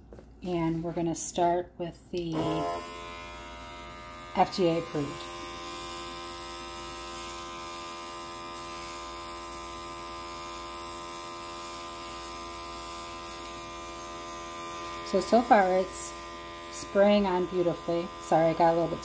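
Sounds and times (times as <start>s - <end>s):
airbrush compressor buzzing: 2.3s - 19.0s
airbrush spraying hiss: 15.1s - 16.1s.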